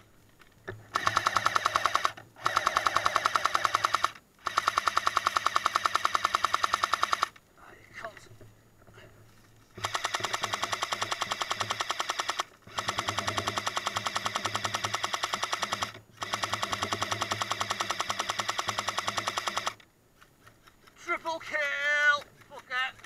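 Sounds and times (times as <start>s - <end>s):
airsoft machine gun bursts: 0.9s - 7.4s, 9.8s - 19.8s.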